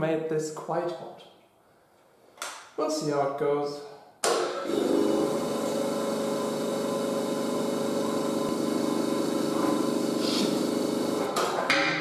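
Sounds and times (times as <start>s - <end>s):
metal shaper motor humming: 4.7s - 11.3s.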